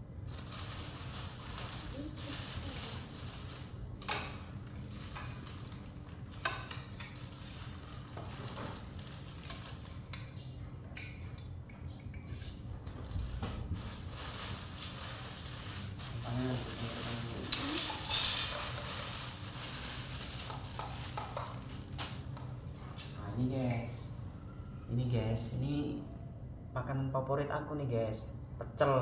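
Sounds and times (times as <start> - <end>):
steady low hum: 0.0 - 29.0
plastic bags rustling: 0.1 - 10.7, 12.7 - 23.1
plates and spoons clinking: 17.4 - 19.0.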